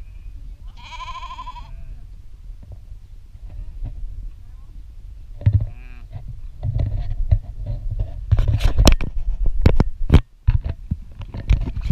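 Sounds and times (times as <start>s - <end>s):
wind rumbling on microphone: 0.0s - 11.9s
sheep bleat: 0.7s - 2.0s, 5.7s - 6.1s.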